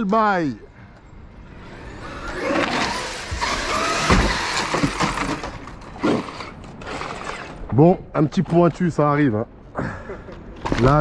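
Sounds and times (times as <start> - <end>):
rc truck motor whine: 1.4 - 7.6.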